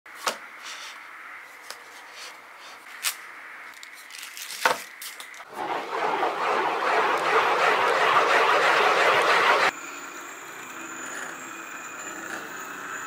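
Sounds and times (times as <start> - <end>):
packaging rustling and clicks: 3.7 - 5.4
ball rolling on surface: 5.5 - 9.7.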